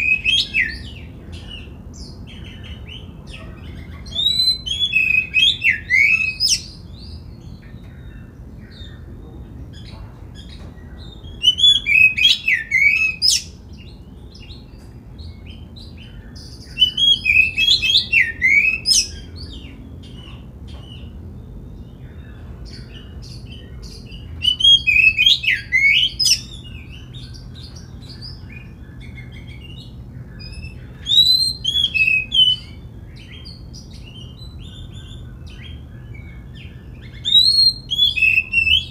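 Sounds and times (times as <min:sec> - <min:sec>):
bird singing whistled phrases: 0:00.0 - 0:01.1, 0:03.8 - 0:07.2, 0:11.2 - 0:14.6, 0:15.4 - 0:19.6, 0:23.0 - 0:27.4, 0:28.0 - 0:38.9.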